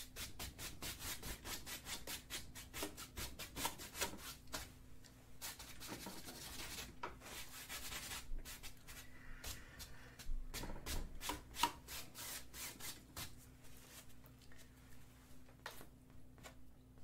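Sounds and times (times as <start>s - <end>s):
paintbrush scrubbing on canvas: 5.4s - 10.0s.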